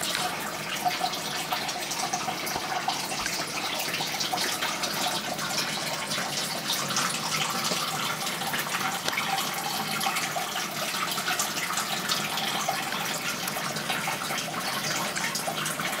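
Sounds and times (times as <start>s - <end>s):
fine bubbling: 0.0s - 16.0s
running water trickling: 0.0s - 16.0s.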